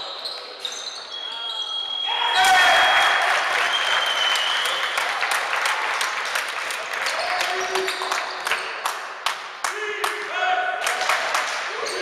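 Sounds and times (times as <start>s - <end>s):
spectators clapping and cheering: 2.4s - 12.0s.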